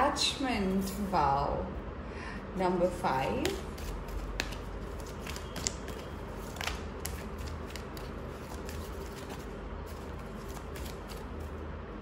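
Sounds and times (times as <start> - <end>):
steady low hum: 0.0 - 12.0
cards shuffling: 3.4 - 11.6.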